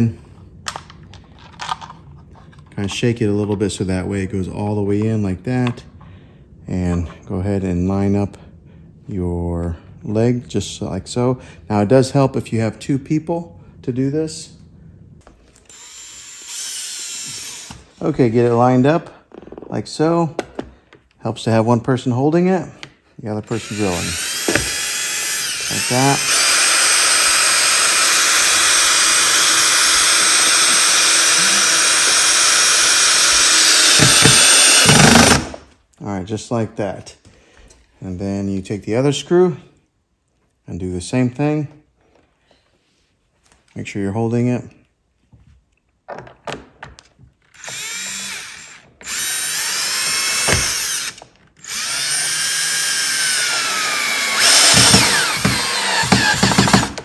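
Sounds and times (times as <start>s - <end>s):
cordless drill driving a screw: 15.6s - 18.0s, 23.6s - 35.6s, 47.6s - 57.0s.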